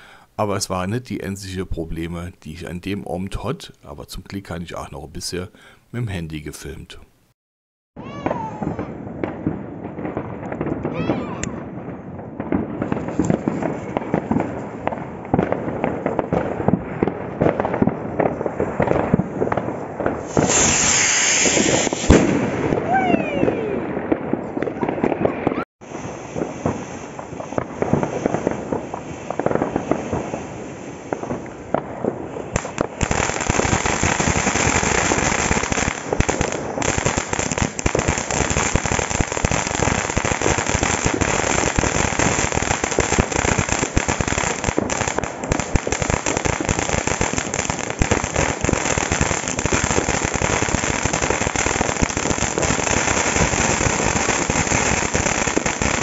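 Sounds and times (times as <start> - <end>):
firework fountain hissing and crackling: 18.2 - 23.8, 25.8 - 56.0.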